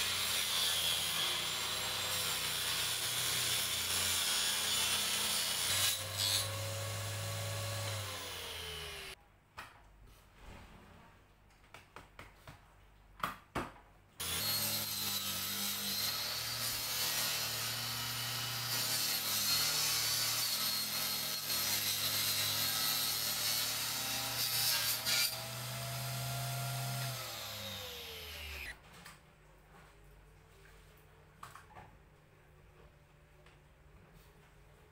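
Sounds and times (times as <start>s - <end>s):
table saw cutting plywood: 0.0s - 9.2s, 14.2s - 28.8s.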